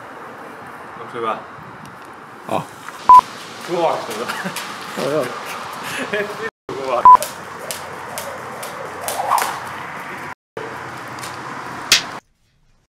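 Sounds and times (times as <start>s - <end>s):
loud sharp click: 11.9s - 12.2s.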